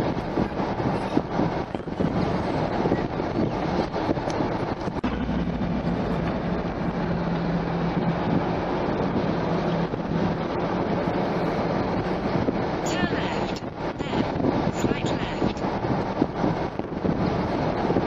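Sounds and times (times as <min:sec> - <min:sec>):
low steady hum: 0:00.0 - 0:17.6
car road noise from inside cabin: 0:00.0 - 0:18.0
wind noise on microphone: 0:00.0 - 0:18.0.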